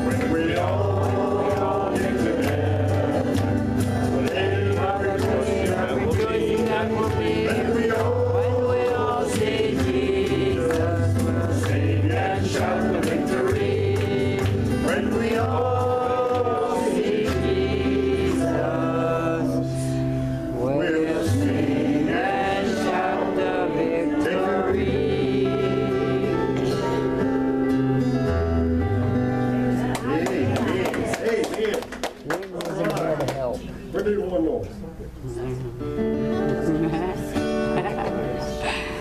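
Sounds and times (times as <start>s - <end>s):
man and women singing: 0.0s - 27.4s, 30.0s - 31.5s
strummed acoustic guitar: 0.0s - 31.2s, 35.8s - 39.0s.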